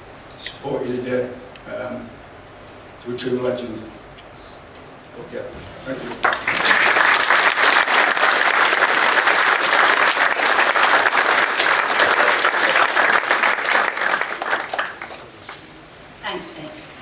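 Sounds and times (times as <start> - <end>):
audience applauding: 6.1 - 15.6.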